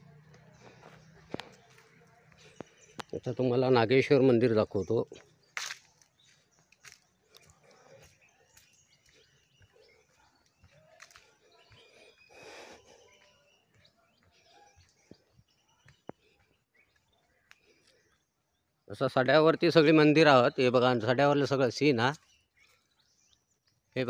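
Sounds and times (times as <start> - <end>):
faint bird chirps: 0.0 - 19.9, 20.6 - 24.0.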